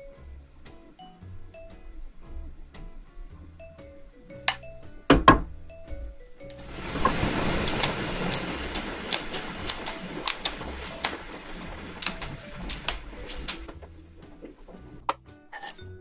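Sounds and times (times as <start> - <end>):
broth bubbling: 6.5 - 15.0.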